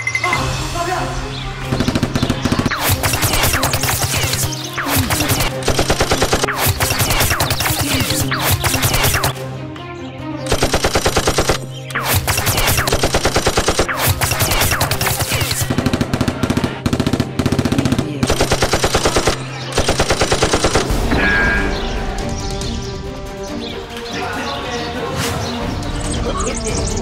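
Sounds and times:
background music: 0.0 - 27.0
rapid automatic gunfire: 1.7 - 9.4, 10.5 - 20.9.

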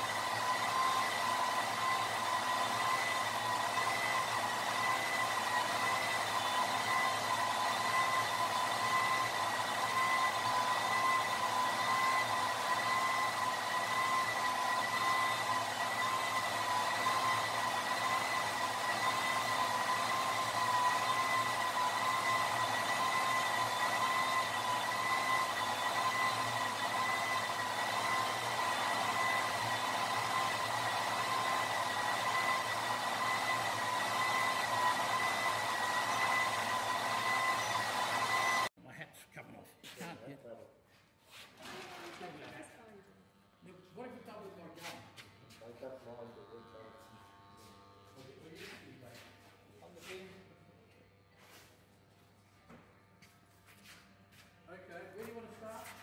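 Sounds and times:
machine motor whining: 0.0 - 38.7, 45.4 - 49.0.

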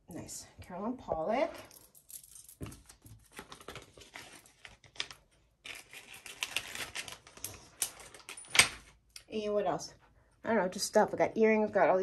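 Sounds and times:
plastic packaging rustling: 2.8 - 8.9.

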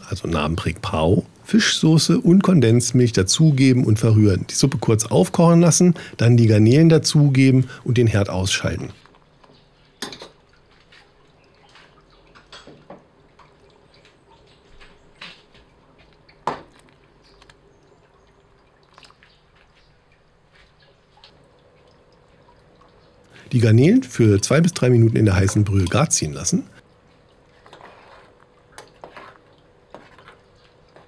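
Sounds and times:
broth bubbling in a pot: 9.0 - 23.8, 24.4 - 31.0.

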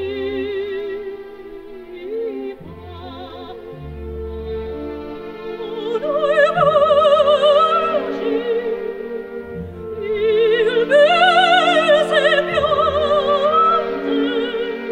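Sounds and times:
operatic singer with vibrato: 0.0 - 14.9
orchestra playing: 0.0 - 14.9.

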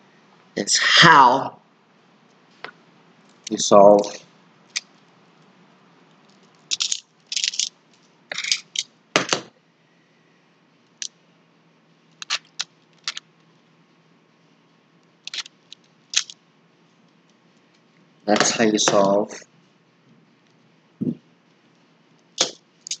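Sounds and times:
plastic puzzle tiles clicking: 6.7 - 7.7, 15.3 - 15.5, 16.2 - 16.4, 22.4 - 23.0.

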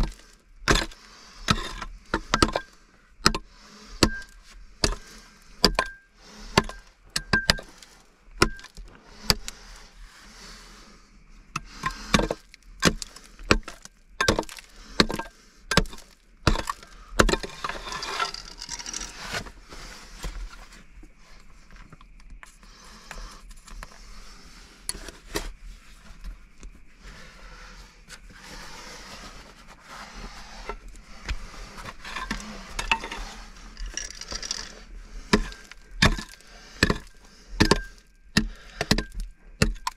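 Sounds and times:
scraping: 11.6 - 22.0, 23.1 - 39.9.

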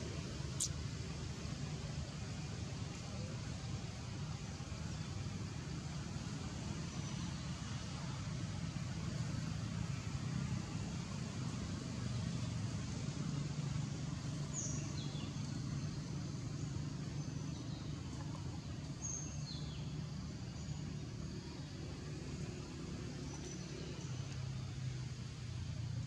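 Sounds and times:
low outdoor rumble: 0.0 - 26.0.

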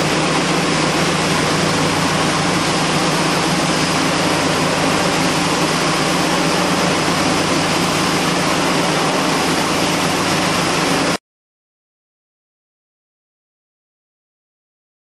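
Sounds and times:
powder mill running: 0.0 - 11.2.

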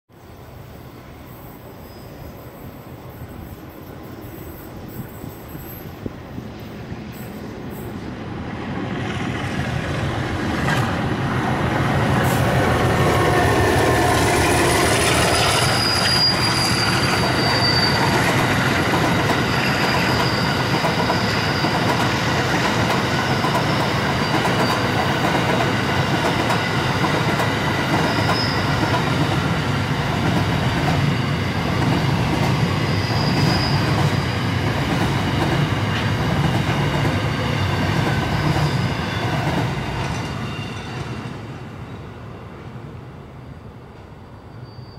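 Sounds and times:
diesel locomotive passing: 2.4 - 44.9
high wheel squeal: 14.4 - 22.1, 28.0 - 28.8, 32.7 - 34.4, 44.4 - 44.9.

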